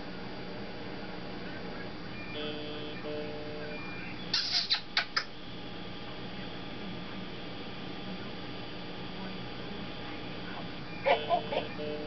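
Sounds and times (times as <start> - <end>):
parrot chirping: 3.8 - 5.3.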